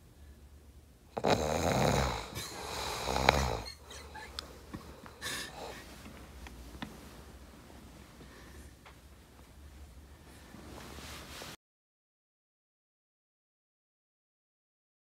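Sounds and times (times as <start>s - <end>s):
person snoring: 1.2s - 4.2s, 5.2s - 5.8s.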